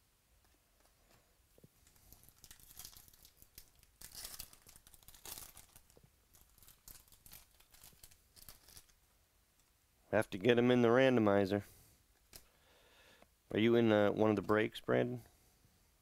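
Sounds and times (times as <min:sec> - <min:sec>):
wrapper tearing and crinkling: 0:01.8 - 0:09.0.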